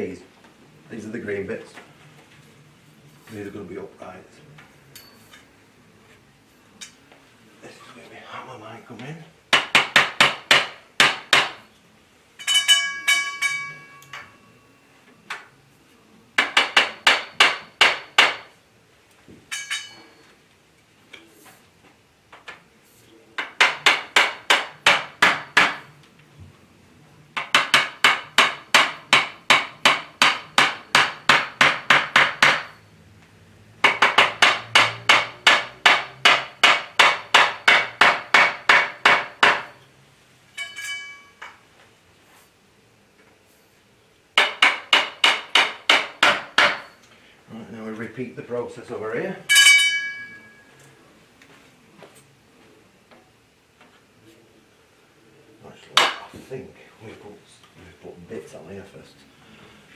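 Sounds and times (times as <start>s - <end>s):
metal ringing: 4.9s - 5.5s, 12.4s - 14.8s, 19.5s - 20.3s, 40.5s - 41.6s, 49.5s - 50.8s.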